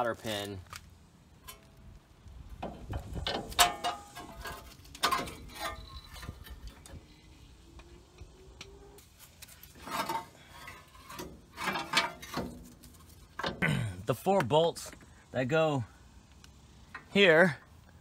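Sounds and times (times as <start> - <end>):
metal clicks and clanks: 2.6 - 7.0, 9.7 - 13.6.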